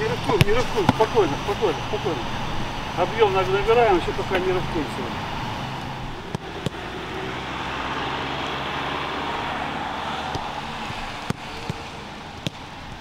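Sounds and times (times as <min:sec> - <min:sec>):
outdoor background noise: 0:00.0 - 0:13.0
footballs being kicked: 0:00.1 - 0:01.4, 0:06.3 - 0:06.8, 0:10.3 - 0:11.8, 0:12.4 - 0:13.0.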